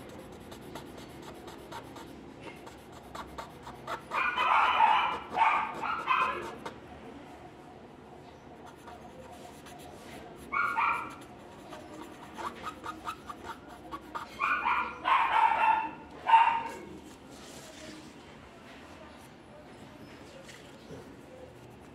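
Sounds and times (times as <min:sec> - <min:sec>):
dog barking: 0:03.9 - 0:06.7, 0:10.5 - 0:11.3, 0:14.3 - 0:16.9.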